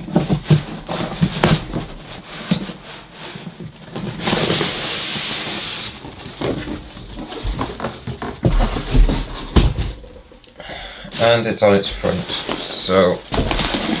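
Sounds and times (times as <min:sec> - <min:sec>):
cardboard box rustling and knocking: 0:00.0 - 0:10.4, 0:12.0 - 0:14.0
cardboard scraping over foam: 0:00.0 - 0:10.4, 0:11.1 - 0:14.0.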